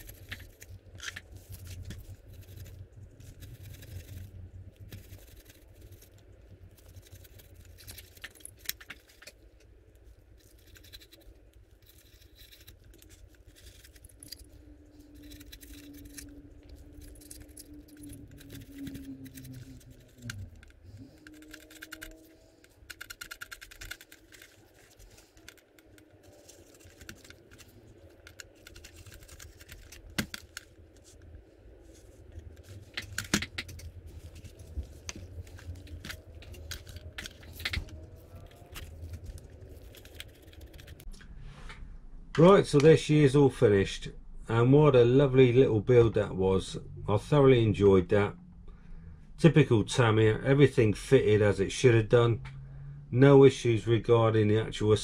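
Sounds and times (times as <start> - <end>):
paintbrush scratching plastic: 0.0 - 41.1.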